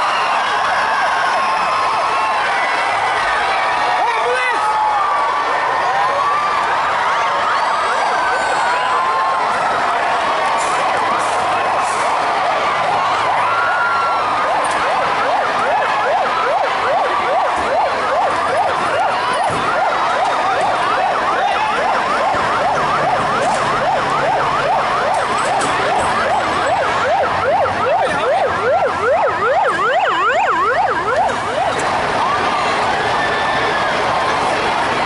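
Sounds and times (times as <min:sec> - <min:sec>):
fire engine siren yelping: 0:00.0 - 0:35.0.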